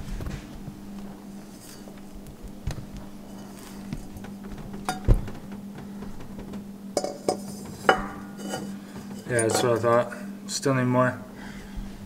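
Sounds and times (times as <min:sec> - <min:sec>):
steady low hum: 0:00.0 - 0:12.0
metal pipe clinking and knocking: 0:04.8 - 0:05.5, 0:06.3 - 0:10.1.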